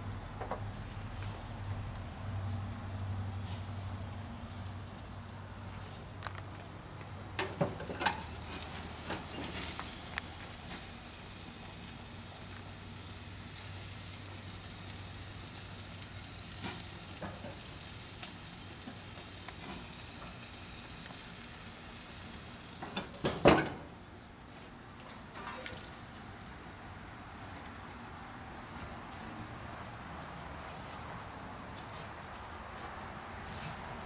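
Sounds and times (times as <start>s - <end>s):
grill lid clanking shut: 7.4s - 9.7s, 22.8s - 24.0s
steak sizzling on grill: 7.4s - 23.9s.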